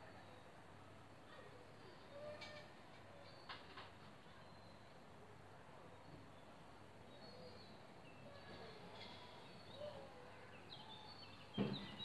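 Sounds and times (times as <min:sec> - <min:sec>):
small birds chirping: 0:09.0 - 0:12.0.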